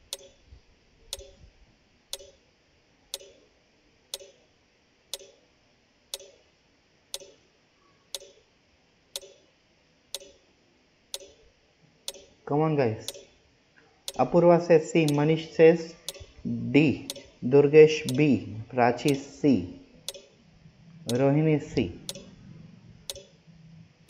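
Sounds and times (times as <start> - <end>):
clock ticking: 0.0 - 0.4, 1.1 - 1.4, 2.1 - 2.4, 3.2 - 3.4, 4.1 - 4.4, 5.1 - 5.4, 6.1 - 6.4, 7.2 - 7.4, 8.2 - 8.4, 9.2 - 9.4, 10.2 - 10.4, 11.2 - 11.4, 12.1 - 12.4, 13.0 - 13.3, 14.1 - 14.3, 16.1 - 16.4, 17.1 - 17.4, 18.0 - 18.3, 19.1 - 19.3, 20.1 - 20.3, 22.1 - 22.3, 23.1 - 23.3.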